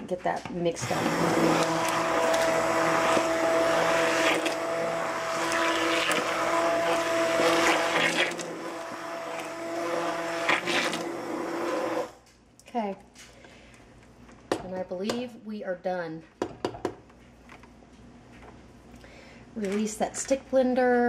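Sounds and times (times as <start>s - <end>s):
immersion blender motor whine: 0.8s - 12.2s.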